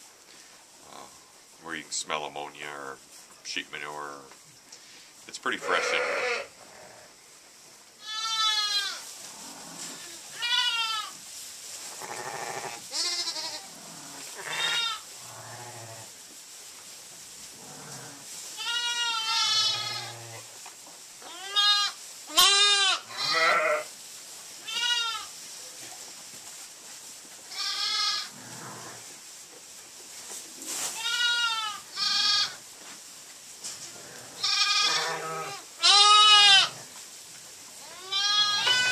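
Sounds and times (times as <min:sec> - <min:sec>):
sheep and lambs bleating: 0:05.5 - 0:07.1, 0:08.0 - 0:09.0, 0:09.8 - 0:11.2, 0:12.0 - 0:16.1, 0:18.1 - 0:20.4, 0:21.3 - 0:23.9, 0:24.6 - 0:25.3, 0:27.5 - 0:28.9, 0:31.0 - 0:32.6, 0:34.2 - 0:36.8, 0:37.8 - 0:38.9.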